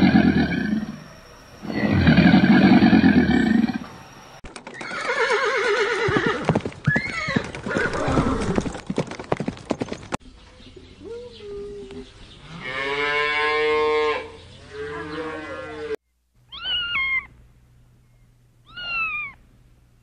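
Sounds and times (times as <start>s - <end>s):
alligator bellowing: 0.0s - 4.0s
horse neighing: 0.0s - 4.0s, 4.8s - 8.7s.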